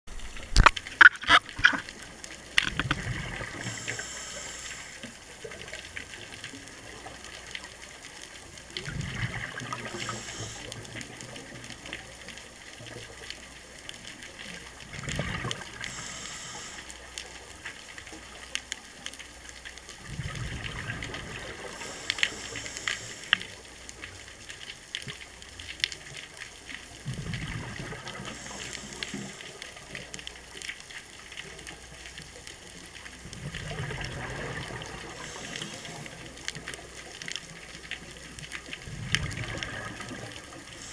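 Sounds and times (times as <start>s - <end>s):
exhaled bubbles gurgling: 0.1s - 40.9s
scuba regulator breathing underwater: 2.9s - 5.2s, 8.9s - 10.9s, 15.2s - 17.1s, 20.1s - 23.6s, 27.1s - 29.8s, 34.3s - 36.4s, 39.6s - 40.9s.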